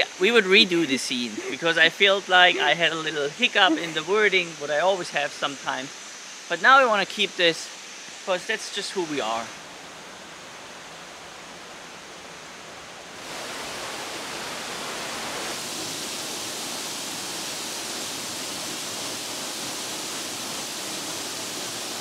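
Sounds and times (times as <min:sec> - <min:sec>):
waterfall rushing: 0:00.0 - 0:22.0.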